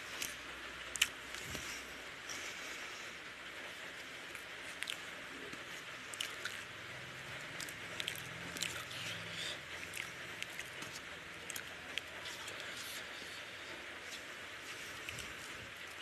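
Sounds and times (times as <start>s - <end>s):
steady hiss: 0.0s - 16.0s
fingers squishing through rice: 4.0s - 16.0s.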